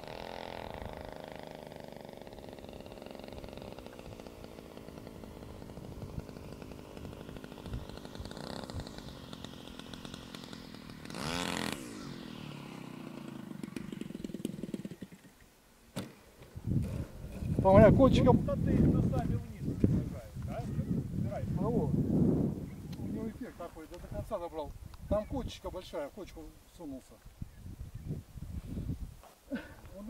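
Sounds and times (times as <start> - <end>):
model plane engine: 0.0 - 19.7.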